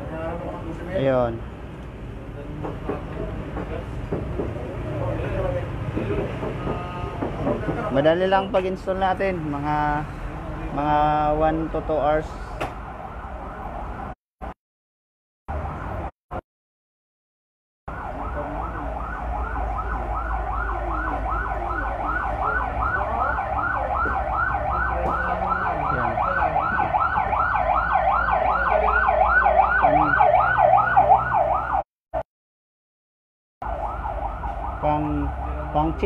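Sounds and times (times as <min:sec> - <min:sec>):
electronic siren yelping: 0:15.5 - 0:16.1, 0:17.9 - 0:31.9, 0:33.6 - 0:36.0.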